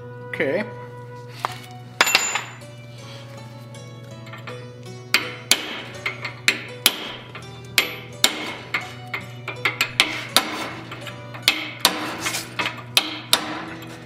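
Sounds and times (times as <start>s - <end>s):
hammer striking chisel on steel: 2.0s - 2.7s, 4.3s - 14.0s.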